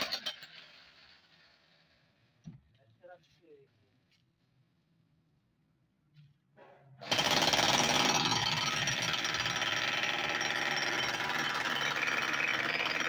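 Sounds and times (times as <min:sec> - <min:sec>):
demolition hammer breaking concrete: 0:07.0 - 0:13.0.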